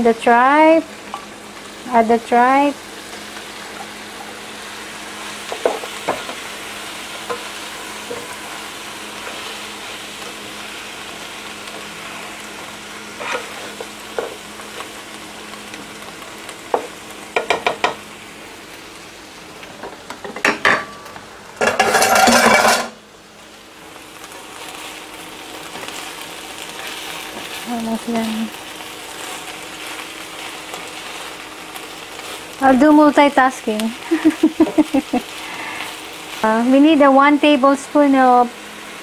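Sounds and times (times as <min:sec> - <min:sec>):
meat sizzling in a pan: 0:00.0 - 0:39.0
spatula knocking against pan: 0:16.7 - 0:18.0.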